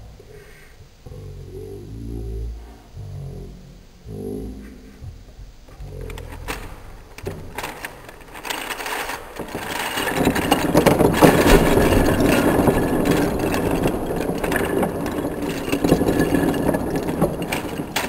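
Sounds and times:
plastic puzzle pieces clicking: 6.0s - 18.0s
pieces clattering on wooden table: 6.1s - 18.0s.

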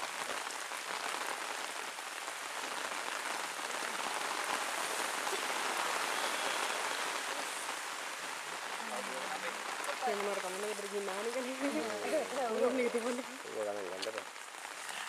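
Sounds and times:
steady rain falling: 0.0s - 15.0s.

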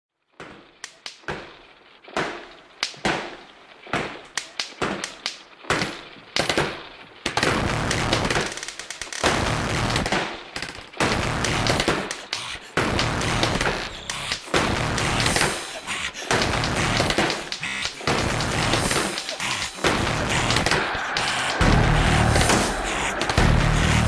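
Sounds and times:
distorted music with pulsing beat: 7.5s - 24.0s.

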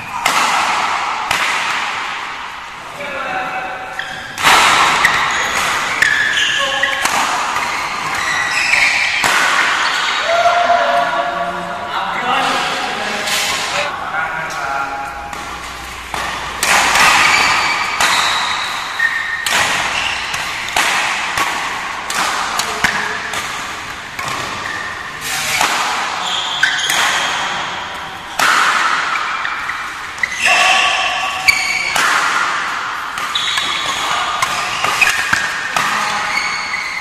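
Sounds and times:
rackets hitting shuttlecock: 0.0s - 2.7s, 3.9s - 10.3s, 15.2s - 37.0s
shoes squeaking on court: 3.9s - 10.2s, 15.3s - 20.8s, 22.6s - 28.3s, 29.0s - 32.1s, 33.0s - 37.0s.

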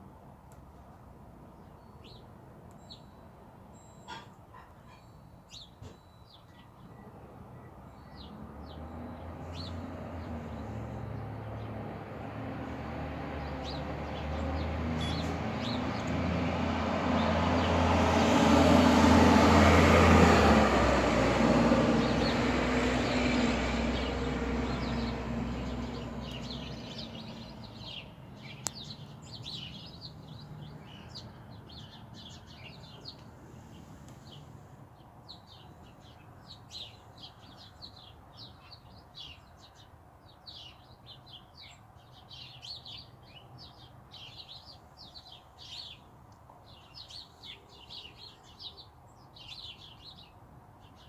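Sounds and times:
small birds chirping: 1.5s - 17.9s, 21.9s - 51.0s
vehicle driving past: 8.2s - 37.3s.

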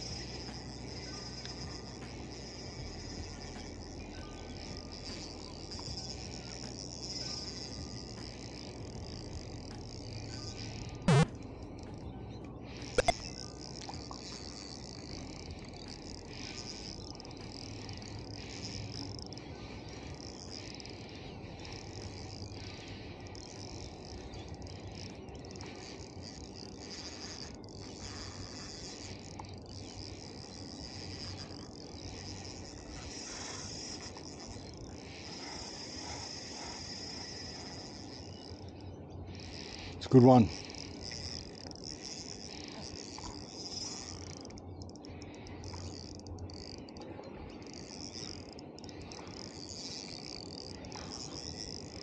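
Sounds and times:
insects chirring: 0.0s - 52.0s.

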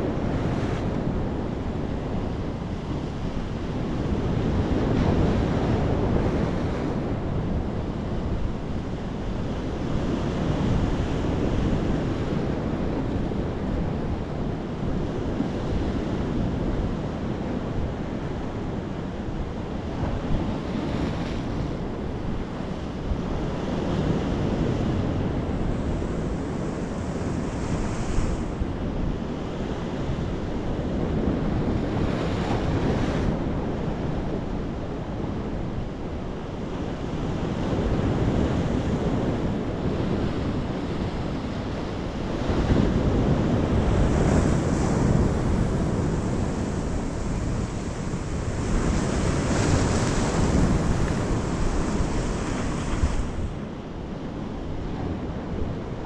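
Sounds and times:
sea surf breaking on rocks: 37.7s - 53.6s.

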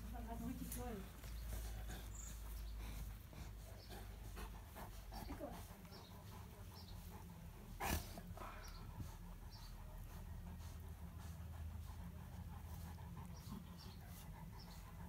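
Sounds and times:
dog panting: 0.0s - 15.0s.

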